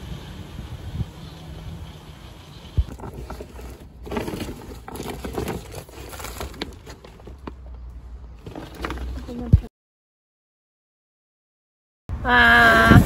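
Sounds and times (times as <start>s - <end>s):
plastic bag rustling: 2.8s - 9.5s.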